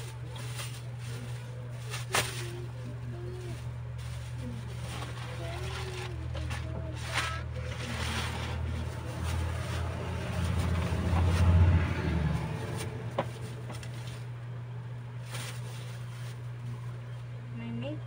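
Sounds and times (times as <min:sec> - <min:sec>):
plastic wrapping rustling: 0:00.0 - 0:14.4, 0:15.2 - 0:17.1
cardboard box rustling: 0:04.0 - 0:11.6.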